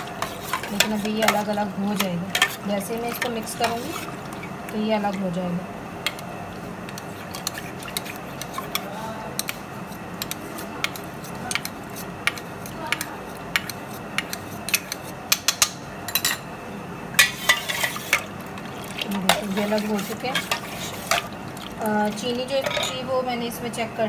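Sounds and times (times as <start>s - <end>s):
ladle clinking against steel bowl: 22.1s - 23.0s.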